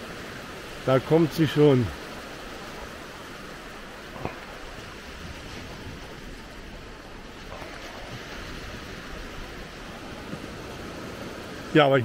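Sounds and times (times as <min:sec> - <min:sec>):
surf washing: 0:00.0 - 0:12.0.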